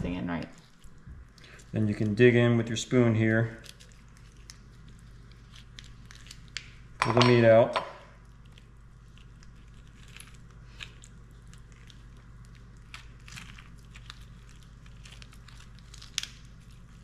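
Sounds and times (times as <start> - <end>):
steady low hum: 0.0 - 17.0
lobster shell crackling and clicking: 3.6 - 7.3, 8.2 - 17.0.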